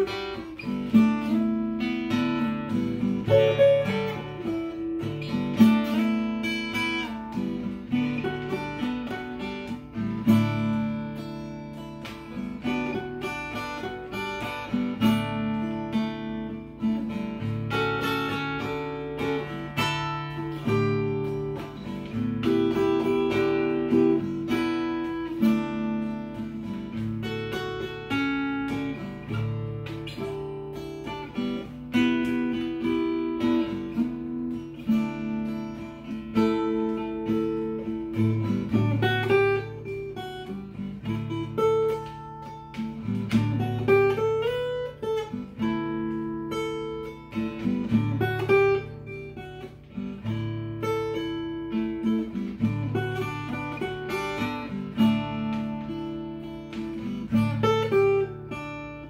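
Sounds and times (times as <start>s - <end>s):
fingerpicked acoustic guitar: 0.0s - 59.0s.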